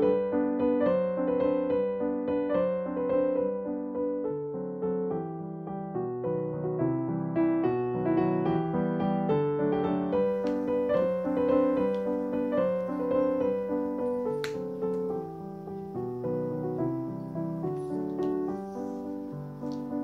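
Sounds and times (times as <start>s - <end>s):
solo piano waltz: 0.0s - 20.0s.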